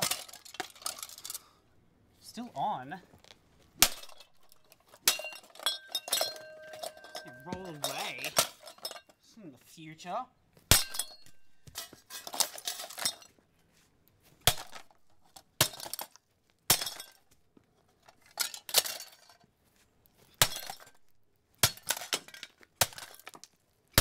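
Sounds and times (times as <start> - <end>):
sledgehammer striking metal and plastic: 3.8 - 8.8, 10.7 - 13.2
sharp clanks and clinks: 3.9 - 9.2.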